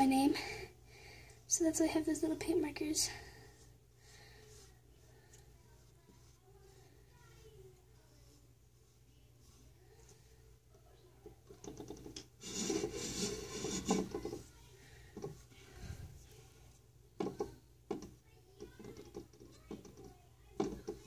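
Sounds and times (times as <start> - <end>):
paintbrush tapping and scraping: 2.0 - 21.0
rubbing and scratching wooden box: 11.7 - 14.4.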